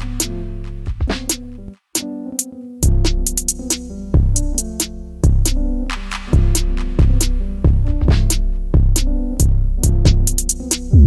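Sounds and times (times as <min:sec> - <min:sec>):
music with beat and held chords: 0:00.0 - 0:11.0.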